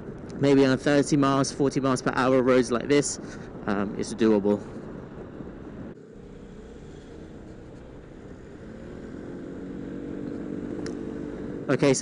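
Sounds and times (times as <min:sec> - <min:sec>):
scooter engine running: 0:06.0 - 0:12.0.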